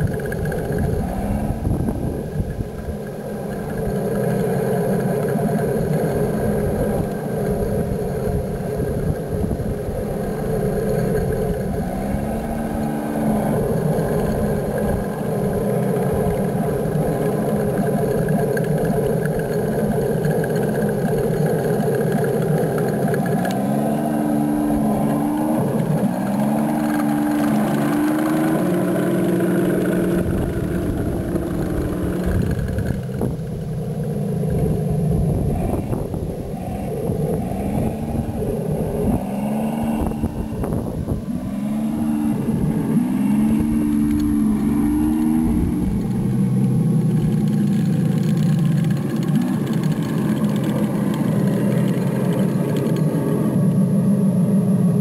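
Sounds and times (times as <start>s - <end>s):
toy tank engine drone: 0.0s - 55.0s.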